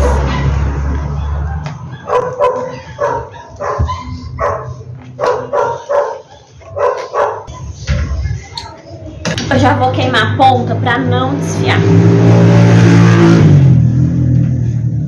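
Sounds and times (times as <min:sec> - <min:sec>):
dog barking: 0:00.0 - 0:07.7.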